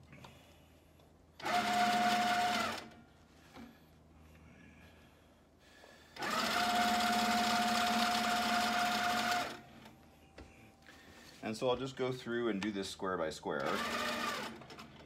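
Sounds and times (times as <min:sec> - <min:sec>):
sewing machine stitching: 0:01.4 - 0:03.0, 0:06.2 - 0:09.6, 0:13.6 - 0:15.0.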